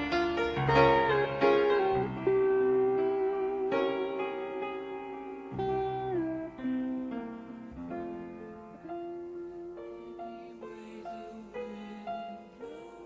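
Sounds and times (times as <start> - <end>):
slow soft piano music: 0.0 - 13.0.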